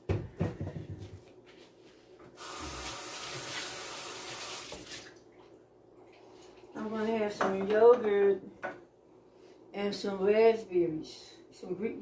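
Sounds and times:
faucet running into sink: 0:02.4 - 0:05.1.

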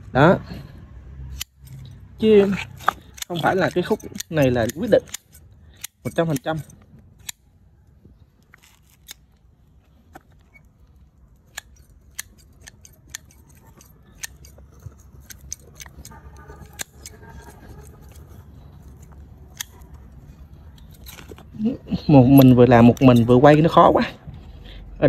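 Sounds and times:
pruning shears snipping roots: 0:01.3 - 0:07.5, 0:11.4 - 0:23.9.

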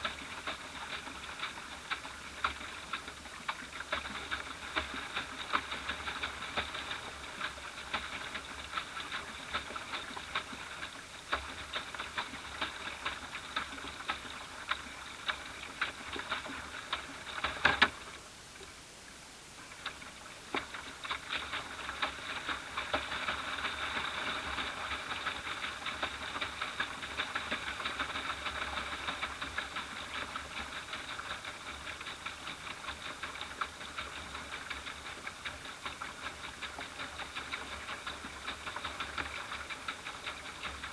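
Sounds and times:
water lapping against boat hull: 0:00.0 - 0:40.9.

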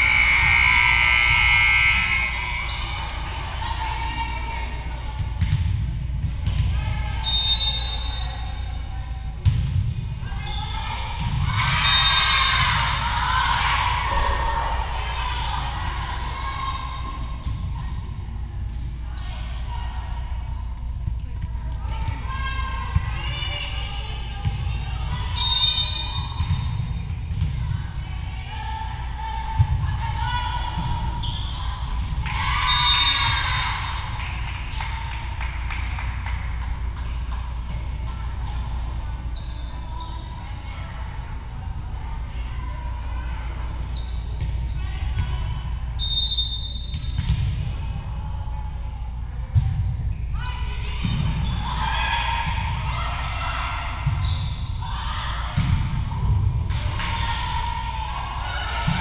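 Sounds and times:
crowd cheering and shouting: 0:00.0 - 0:04.4, 0:11.2 - 0:17.3, 0:51.2 - 0:59.0
hubbub of spectators' voices: 0:00.0 - 0:59.0
steady low hum: 0:00.0 - 0:59.0
scattered claps: 0:34.0 - 0:38.2.

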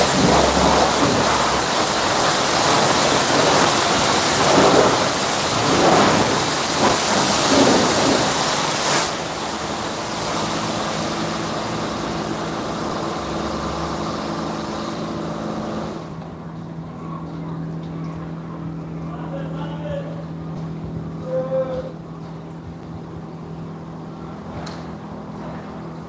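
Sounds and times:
high-pressure water spray hissing: 0:00.0 - 0:16.1
low machine hum: 0:00.0 - 0:26.0.

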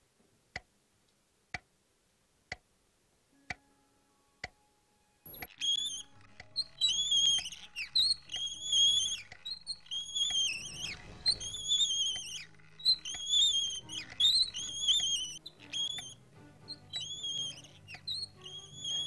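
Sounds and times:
squeaky trolley casters: 0:05.3 - 0:19.0.

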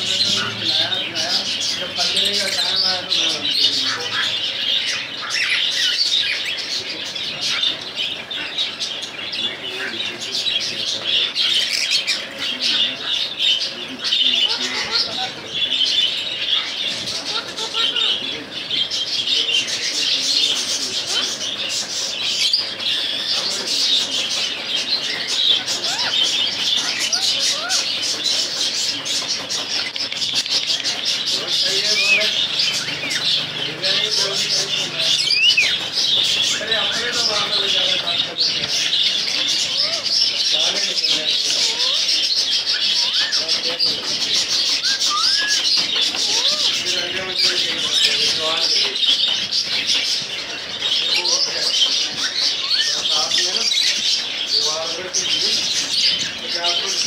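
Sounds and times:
small birds chirping: 0:00.0 - 0:57.0
whistled bird calls: 0:35.1 - 0:35.8, 0:44.7 - 0:46.7.

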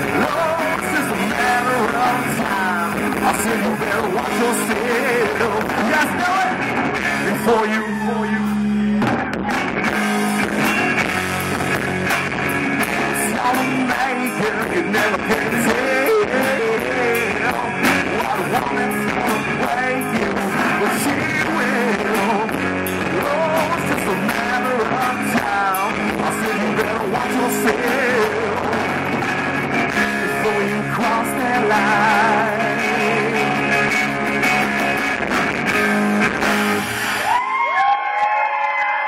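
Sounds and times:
rock band playing: 0:00.0 - 0:38.0
wavering guitar lead line: 0:00.0 - 0:38.2.

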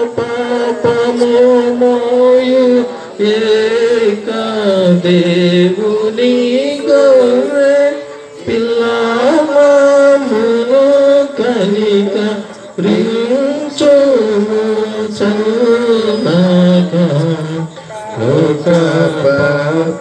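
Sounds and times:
voices singing a hymn: 0:00.0 - 0:20.0.

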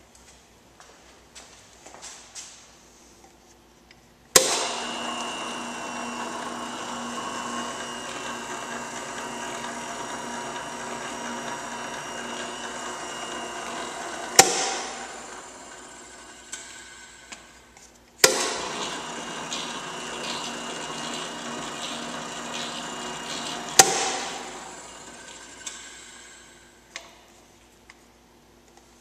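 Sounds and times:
mixer motor hum and whine: 0:04.4 - 0:17.4, 0:18.2 - 0:26.7.

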